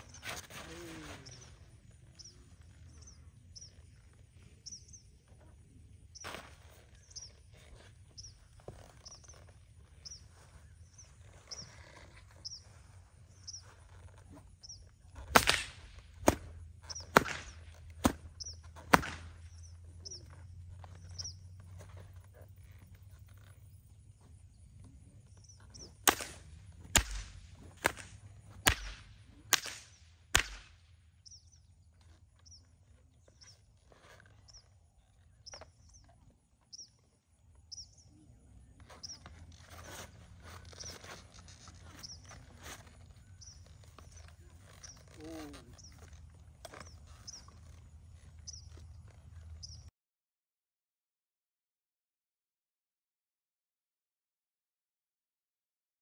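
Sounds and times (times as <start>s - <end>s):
whip cracks: 15.3s - 19.5s, 25.8s - 30.9s.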